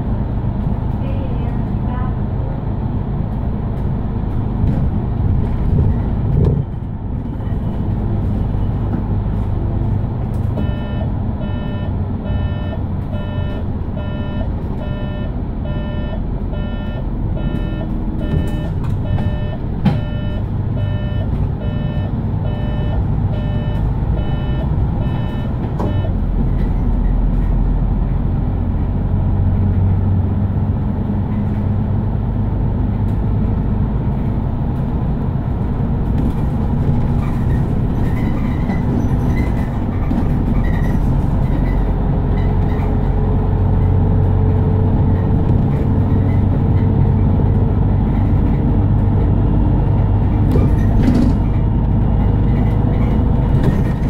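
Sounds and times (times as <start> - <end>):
bus engine and road rumble: 0.0 - 54.0
repeating electronic beep: 10.6 - 26.1.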